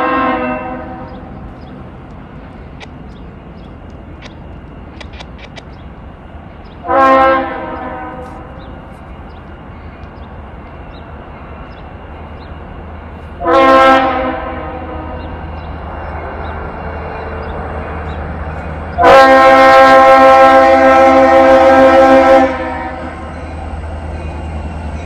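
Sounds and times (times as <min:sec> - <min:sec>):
locomotive air horn blasts: 0:00.0 - 0:01.1, 0:06.8 - 0:08.5, 0:13.4 - 0:15.4, 0:19.0 - 0:23.3
train rumbling: 0:00.0 - 0:25.0.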